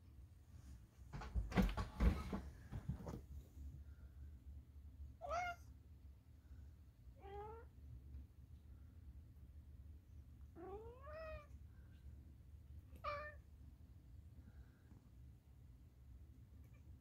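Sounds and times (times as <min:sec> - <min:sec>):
cat meowing: 0:05.2 - 0:05.7, 0:07.2 - 0:07.7, 0:10.6 - 0:11.5, 0:12.9 - 0:13.4.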